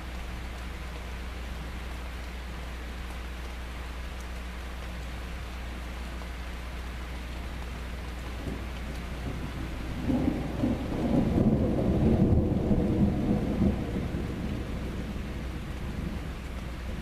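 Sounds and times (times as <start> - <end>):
steady rain: 0.0 - 17.0
rolling thunder: 9.2 - 16.3.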